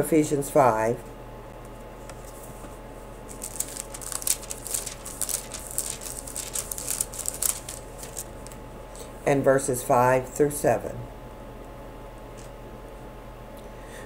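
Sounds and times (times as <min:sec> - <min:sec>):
low steady hum: 0:00.0 - 0:14.0
pages being flipped: 0:02.0 - 0:09.1.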